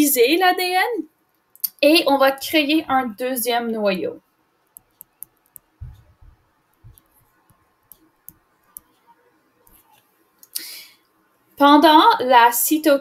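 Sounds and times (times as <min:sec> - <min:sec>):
taps on a touchscreen: 0:04.7 - 0:09.0.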